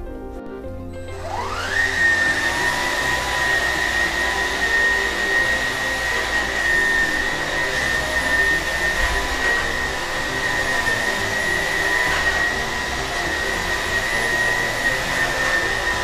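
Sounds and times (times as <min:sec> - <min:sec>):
stick vacuum running on tiles: 0:01.0 - 0:16.0.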